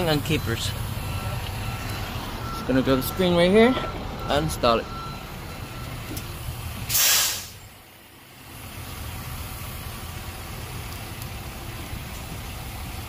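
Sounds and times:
compressed air hiss: 6.8s - 7.7s.

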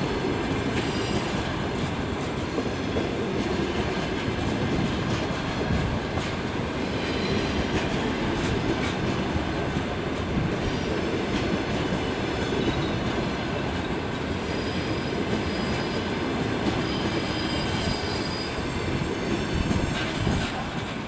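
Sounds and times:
train wheels rumbling on rails: 0.0s - 21.0s
high wheel squeal: 14.3s - 19.1s.

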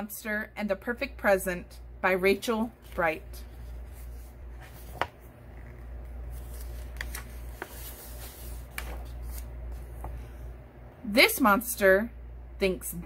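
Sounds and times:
book pages turning: 2.7s - 10.4s.

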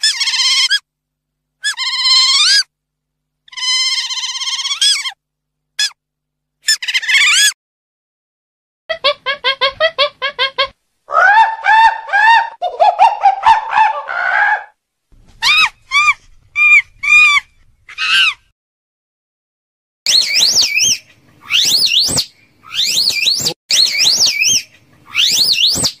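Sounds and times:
animal squeals: 0.0s - 0.9s, 1.6s - 2.7s, 3.5s - 5.2s, 6.6s - 7.6s, 11.1s - 14.8s, 15.4s - 18.5s, 20.1s - 26.0s
animal chirps: 1.6s - 2.7s, 3.5s - 5.2s, 6.6s - 7.6s, 20.1s - 26.0s.

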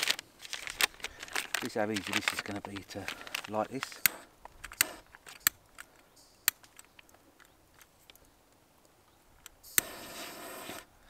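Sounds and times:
torch igniter clicks: 3.9s - 7.2s
torch jet flame hissing: 9.6s - 10.9s.

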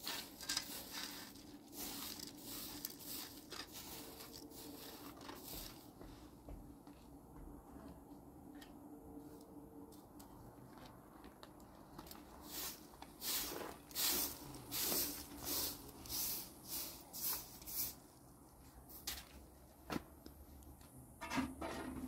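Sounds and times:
broom sweeping dusty ground: 0.0s - 6.4s, 12.1s - 19.4s.

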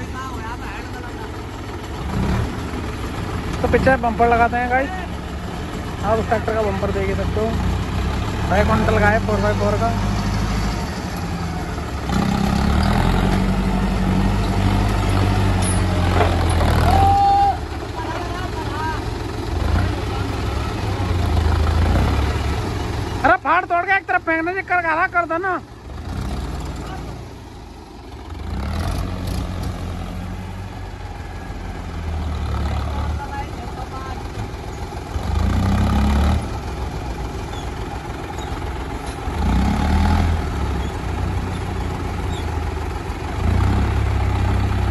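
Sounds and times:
tractor diesel engines running: 0.0s - 44.9s
tractor engine revving under load: 1.6s - 17.0s, 19.0s - 23.6s, 25.8s - 33.6s, 34.2s - 44.9s.

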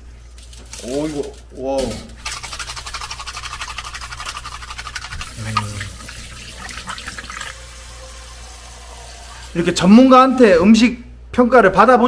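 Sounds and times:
rhythmic scrubbing of shell: 2.2s - 7.3s
tap water running: 2.2s - 10.6s.

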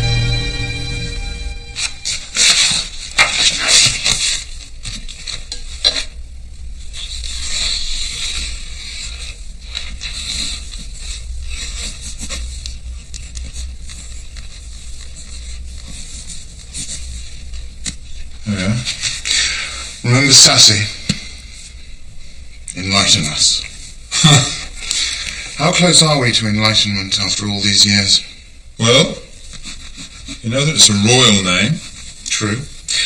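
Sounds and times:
paper rustling and sliding: 6.8s - 20.3s.

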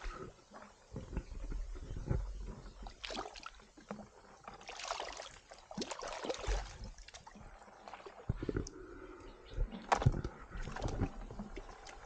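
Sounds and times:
hands splashing in shallow water: 4.6s - 7.2s.

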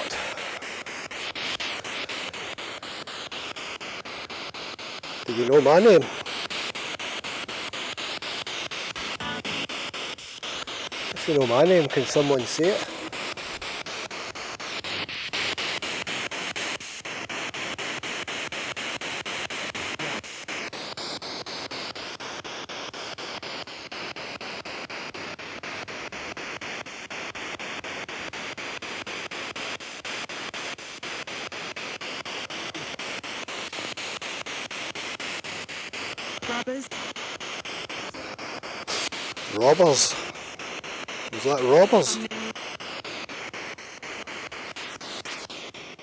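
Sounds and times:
radio static sweeping channels: 0.0s - 20.5s, 36.3s - 42.8s.

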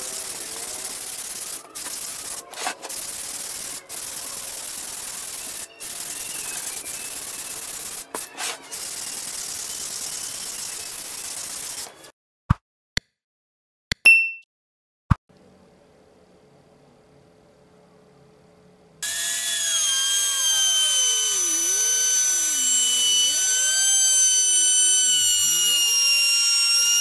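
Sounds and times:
sanding pad rubbing on wood: 0.0s - 11.9s.

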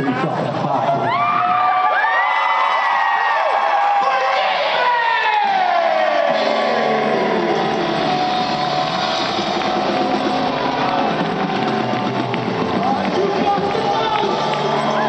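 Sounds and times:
person singing: 5.4s - 9.0s
live rock band playing: 6.3s - 15.0s.

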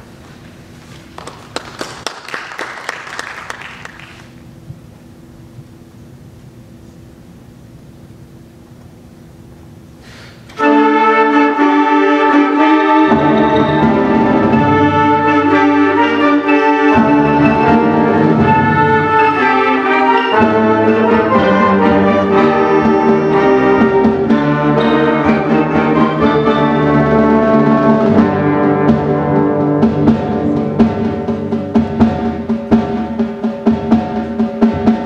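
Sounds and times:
concert band playing: 10.6s - 35.0s
percussion strikes: 10.6s - 35.0s.

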